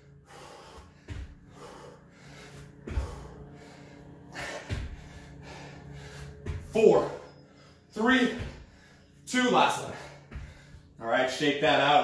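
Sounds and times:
man breathing hard: 0:00.0 - 0:11.0
bare feet landing thuds: 0:00.4 - 0:07.3, 0:08.0 - 0:08.9, 0:09.9 - 0:11.0.

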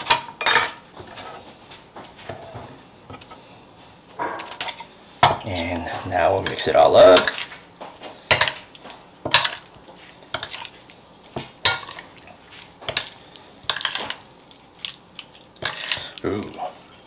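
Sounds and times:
spoon stirring thick sauce: 0:05.6 - 0:17.0.

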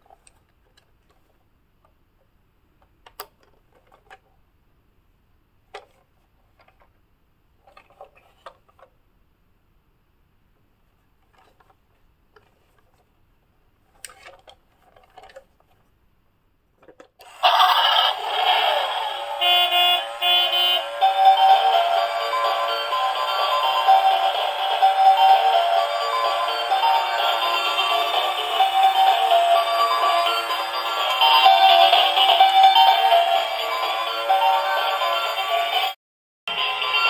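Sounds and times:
toy playing electronic tune: 0:17.2 - 0:37.0.

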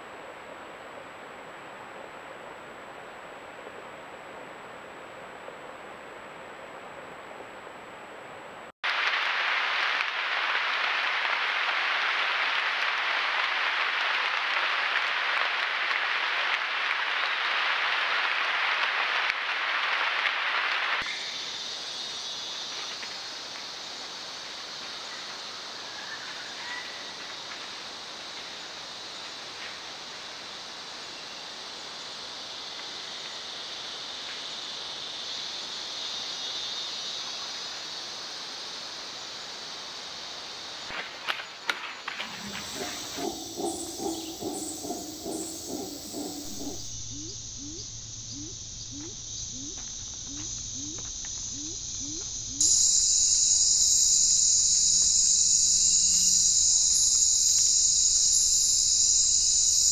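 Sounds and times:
forest background noise: 0:00.0 - 0:59.9
rain falling on foliage: 0:08.8 - 0:36.3.

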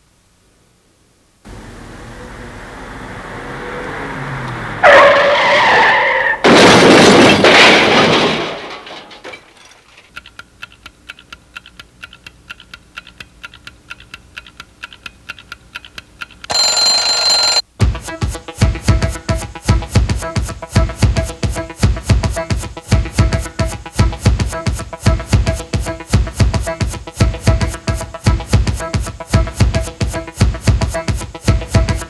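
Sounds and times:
loud screech: 0:03.5 - 0:06.4.

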